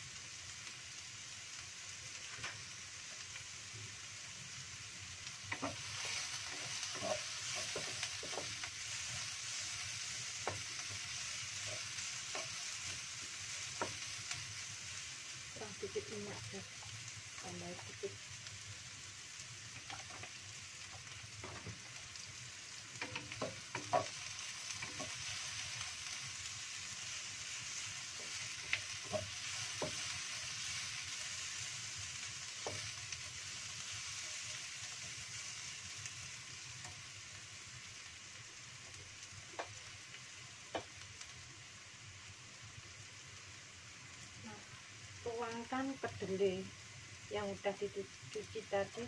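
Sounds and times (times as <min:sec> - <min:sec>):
shallots sizzling in oil: 0:00.0 - 0:49.0
spatula clicking and scraping pan: 0:05.4 - 0:14.4, 0:22.9 - 0:26.3, 0:27.1 - 0:31.6.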